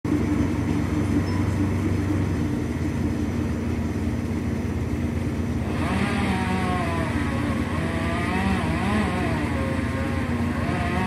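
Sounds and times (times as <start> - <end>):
engine running low: 0.1 - 11.0
high rising whine: 5.1 - 11.0.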